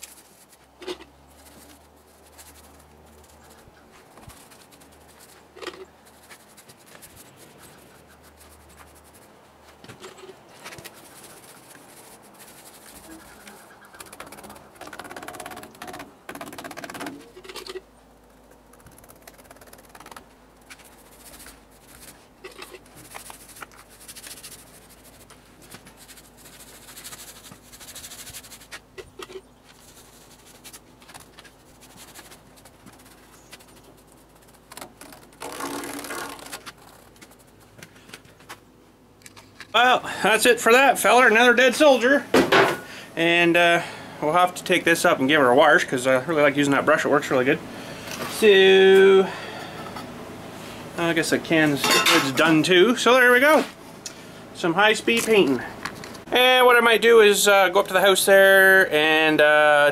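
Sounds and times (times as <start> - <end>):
paintbrush swishing on metal: 0.0 - 15.1, 20.8 - 28.8.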